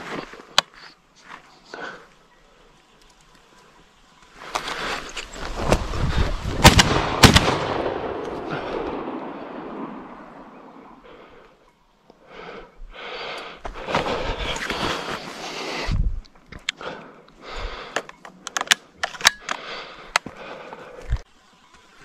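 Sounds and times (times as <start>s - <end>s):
rustling through shrubs: 0.0s - 7.5s, 13.0s - 22.0s
shotgun shots: 6.6s - 8.2s.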